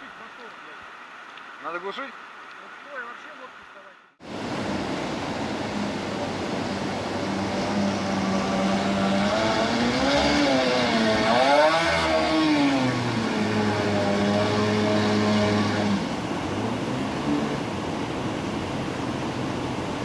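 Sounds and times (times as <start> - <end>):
whitewater rushing: 0.0 - 20.0
boat motor revving: 4.2 - 18.0.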